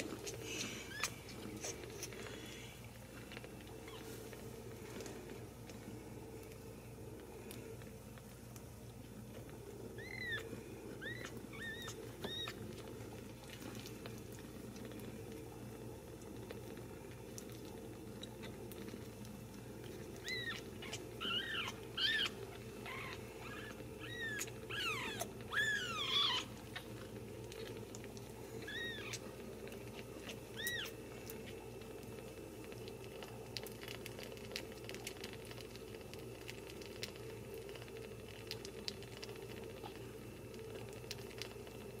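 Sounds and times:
kittens mewing: 0:20.2 - 0:26.8.

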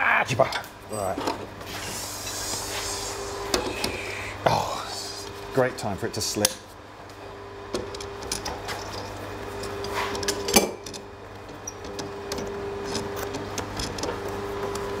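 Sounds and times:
wrench clinking and scraping on metal: 0:07.8 - 0:14.2.

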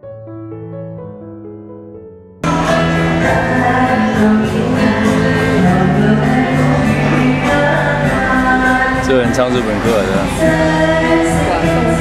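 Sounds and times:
soft electric piano music: 0:00.0 - 0:04.8
musical accompaniment: 0:00.9 - 0:12.0
duo singing live: 0:02.5 - 0:12.0.

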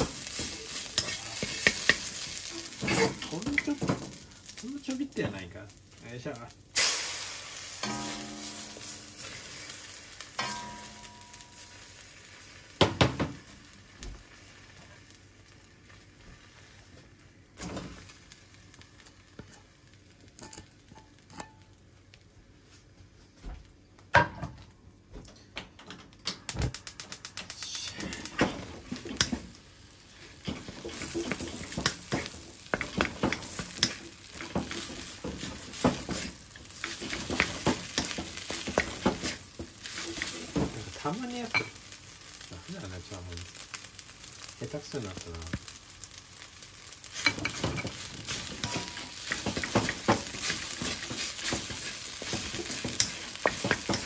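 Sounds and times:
utensil knocking on wok: 0:00.0 - 0:02.1, 0:30.5 - 0:40.8, 0:47.2 - 0:54.0
spatula scraping and clattering wok: 0:00.0 - 0:04.6, 0:06.8 - 0:13.4, 0:19.2 - 0:21.7, 0:27.4 - 0:42.4, 0:46.8 - 0:54.0
egg sizzling in hot wok: 0:00.0 - 0:22.7, 0:26.3 - 0:54.0.

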